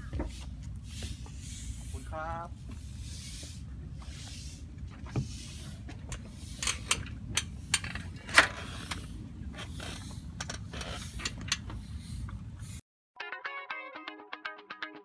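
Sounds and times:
bicycle clicks and clanks: 6.6s - 9.0s.

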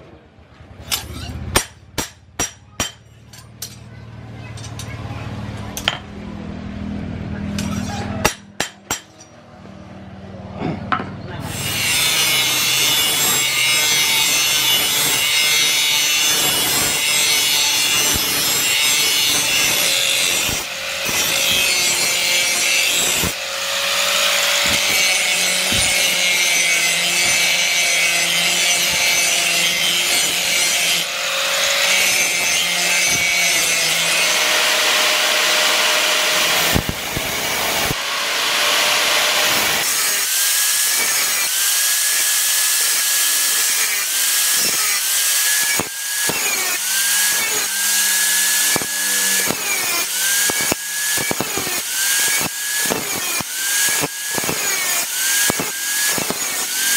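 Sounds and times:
angle grinder grinding metal: 11.5s - 56.9s
grinder motor whine: 11.5s - 56.9s.

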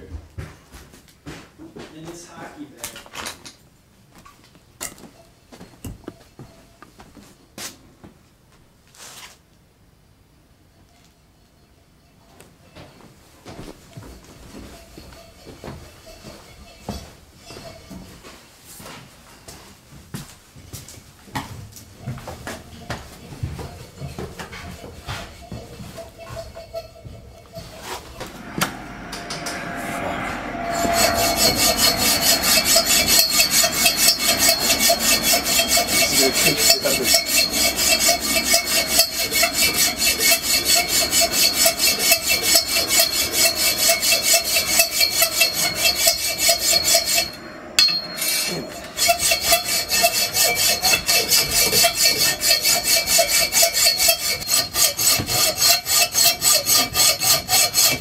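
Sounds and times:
hacksaw cutting metal: 30.7s - 58.0s.

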